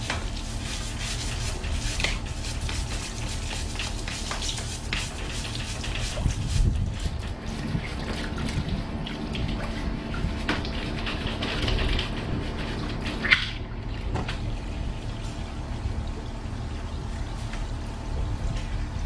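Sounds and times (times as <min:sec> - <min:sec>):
sponge scrubbing: 0:00.0 - 0:13.6
hose water splashing: 0:00.0 - 0:19.0.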